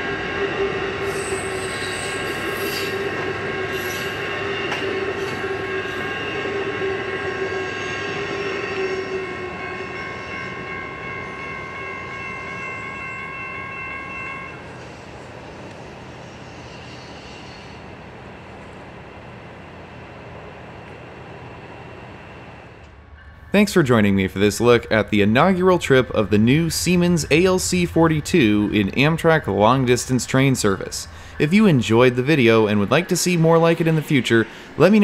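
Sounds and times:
train wheel flanges squealing: 0.0s - 18.0s
low steady train drone: 0.0s - 35.0s.

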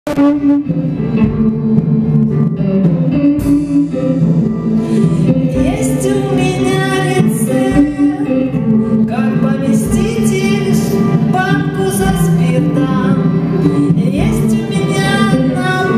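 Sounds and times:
live band music: 0.1s - 15.9s
person singing: 3.4s - 15.9s.

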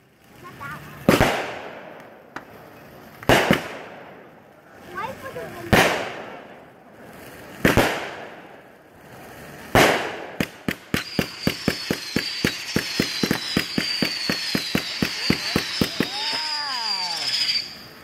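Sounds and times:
rapid firework cracks: 0.0s - 18.0s
firework bangs: 0.4s - 18.0s
high firework whistle: 10.9s - 18.0s.

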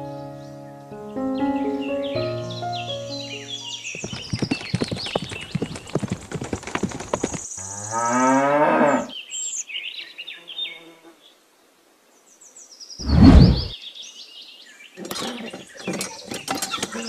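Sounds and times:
cow mooing: 8.0s - 9.1s.

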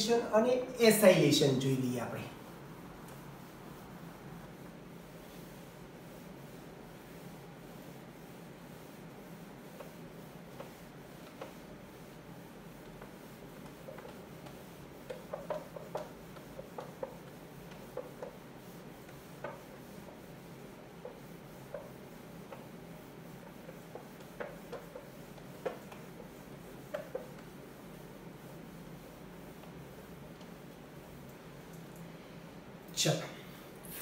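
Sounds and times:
steady low hum: 0.0s - 34.0s
pen writing taps and scratches: 12.8s - 20.2s, 21.0s - 27.5s.

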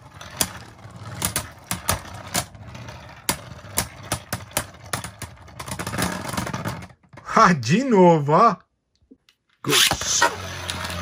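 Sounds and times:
spinning tops whirring: 9.7s - 11.0s.

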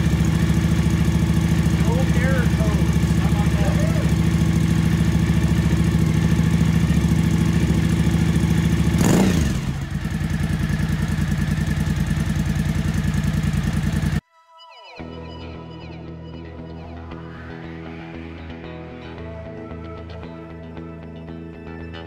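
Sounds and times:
engine revving: 0.0s - 14.2s
motorcycle engine idling: 0.0s - 14.2s
music: 1.8s - 4.0s, 14.2s - 22.0s.

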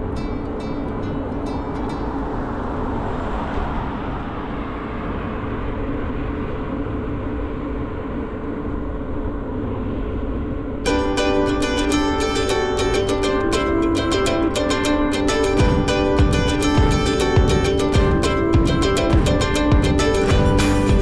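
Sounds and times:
plucked-string music: 0.0s - 2.6s, 10.9s - 21.0s
constant low hum: 0.0s - 21.0s
wind rush: 0.0s - 21.0s.

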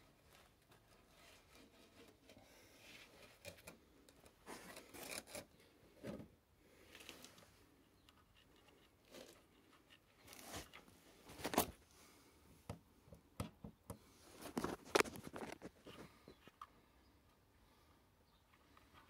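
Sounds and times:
camera handling rustling and scraping: 8.1s - 11.8s, 14.3s - 16.7s.

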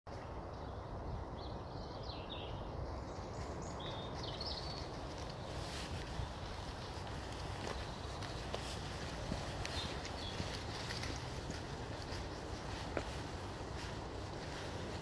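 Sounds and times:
wind rumble on microphone: 0.1s - 15.0s
bird chirps: 1.4s - 5.1s.

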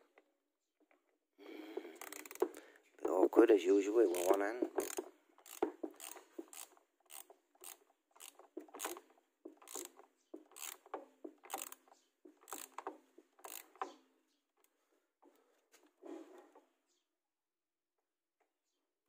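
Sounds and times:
torque wrench ratchet clicking: 2.0s - 2.6s, 4.1s - 9.0s, 9.6s - 11.8s, 12.4s - 13.9s.

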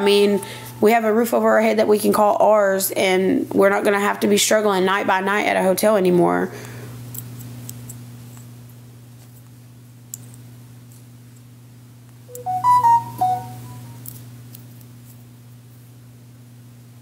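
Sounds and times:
electronic chime of quick beeps: 12.3s - 14.0s.

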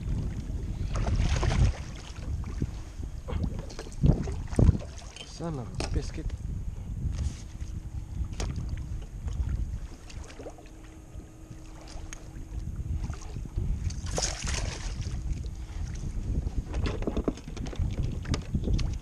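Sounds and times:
wind rumbling on microphone: 0.0s - 19.0s
water splashing: 0.8s - 2.7s, 3.3s - 5.4s, 8.4s - 12.4s, 13.0s - 15.3s.

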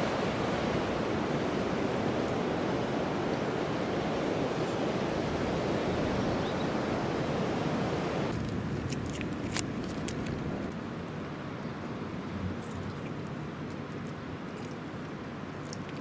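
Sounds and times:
sea surf breaking: 0.0s - 8.7s
wind: 0.0s - 16.0s.

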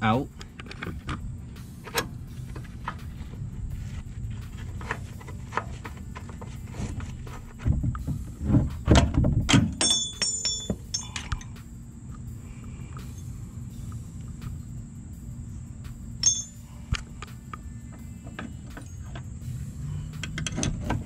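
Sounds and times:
metallic clink ringing: 9.8s - 11.6s, 16.2s - 16.8s.

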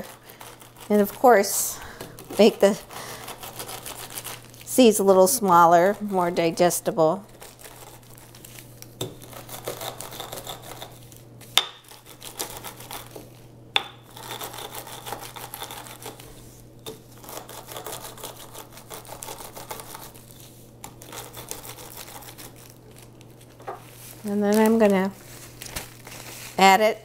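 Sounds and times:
plastic bag crinkling: 0.0s - 5.4s, 22.0s - 26.6s
rolling pin crushing seeds: 0.0s - 23.9s.

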